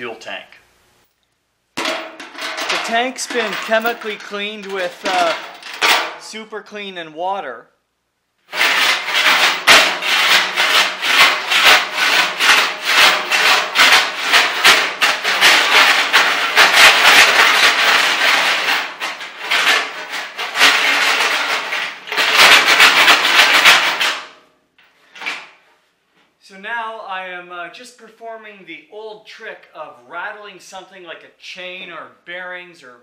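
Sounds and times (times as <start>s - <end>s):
chain rattling inside metal tank: 1.8s - 6.3s, 8.5s - 24.3s.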